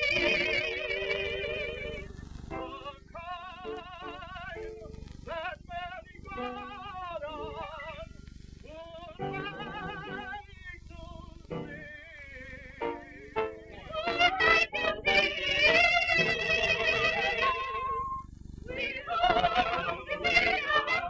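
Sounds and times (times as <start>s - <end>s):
high voice singing with vibrato: 0.0s - 8.0s, 8.7s - 21.0s
low hiss and hum: 0.0s - 21.0s
piano chords: 2.5s - 5.0s, 9.2s - 10.4s, 11.5s - 12.0s, 12.8s - 18.2s.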